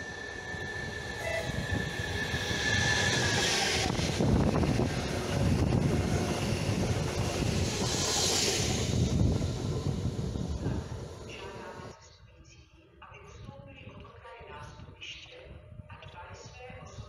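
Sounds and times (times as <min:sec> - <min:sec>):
train wheels rumbling on rails: 0:00.0 - 0:11.9
high steady train whine: 0:00.0 - 0:12.0.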